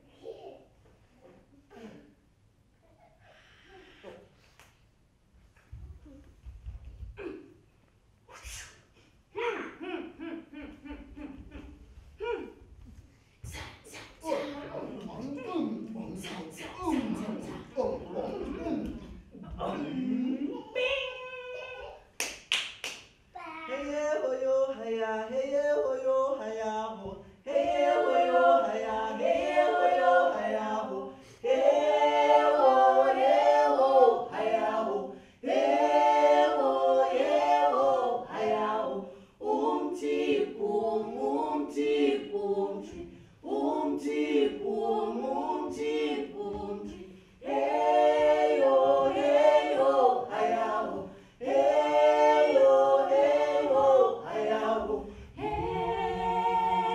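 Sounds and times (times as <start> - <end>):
group singing a cappella: 13.4 - 20.8, 23.8 - 56.9.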